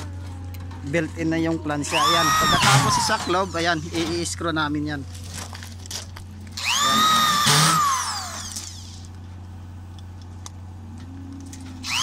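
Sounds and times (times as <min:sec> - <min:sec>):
power drill motor whining: 0:01.9 - 0:04.0, 0:06.5 - 0:09.1, 0:11.7 - 0:12.0.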